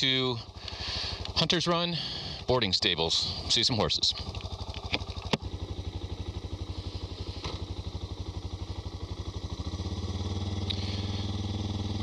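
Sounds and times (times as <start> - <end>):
motorcycle engine idling: 0.0 - 12.0
engine revving: 9.1 - 12.0.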